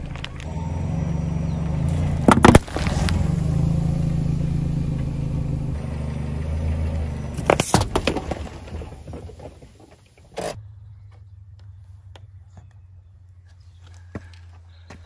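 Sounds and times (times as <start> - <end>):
car engine humming: 0.0 - 13.6
car tyre crushing drink cans: 1.8 - 3.5, 7.2 - 10.6.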